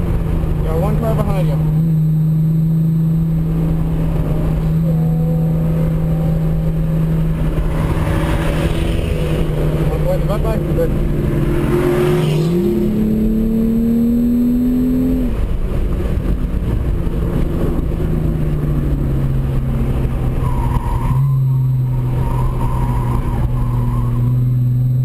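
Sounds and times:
car engine from inside cabin: 0:00.0 - 0:25.0
tires squealing: 0:04.1 - 0:12.8, 0:20.0 - 0:24.8.

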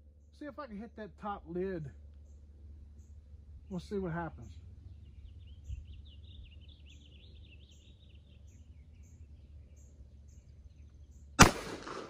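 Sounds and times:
birds chirping: 0:00.0 - 0:12.0
low steady rumble: 0:00.0 - 0:12.0
loud revolver gunshot with echo: 0:11.4 - 0:12.0.

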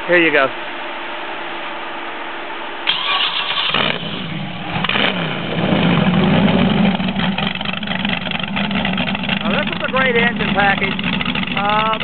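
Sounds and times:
engine starting and idling: 0:02.9 - 0:12.0.

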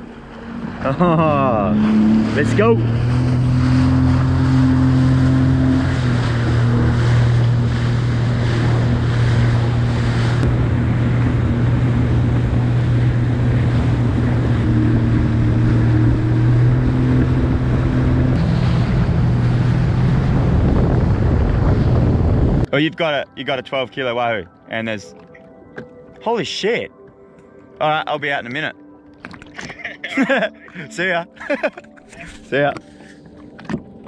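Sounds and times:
jet ski engine running: 0:00.0 - 0:23.1, 0:32.5 - 0:34.0
wind on microphone: 0:01.7 - 0:22.7.

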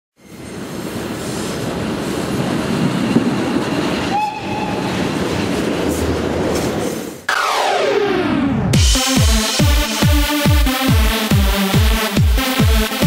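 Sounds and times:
train wheels rumbling on rail: 0:00.2 - 0:07.3.

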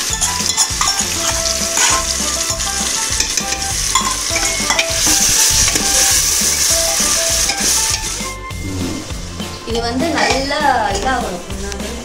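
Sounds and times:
meat sizzling in oil: 0:00.0 - 0:08.5
ladle stirring and scraping pot: 0:00.0 - 0:11.1.

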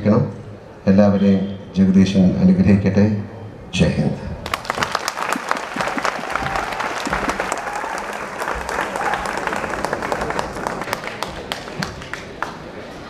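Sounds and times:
crowd applauding: 0:04.4 - 0:13.0.

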